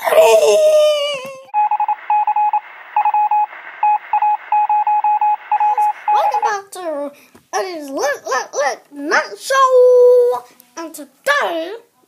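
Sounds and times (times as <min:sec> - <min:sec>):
child crying out: 0:00.0 - 0:01.5
rapid electronic beeps: 0:01.6 - 0:06.4.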